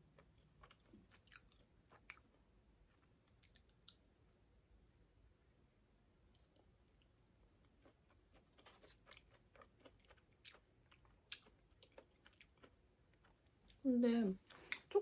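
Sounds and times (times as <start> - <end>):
faint wet chewing clicks: 0.1 - 4.1, 6.3 - 13.8.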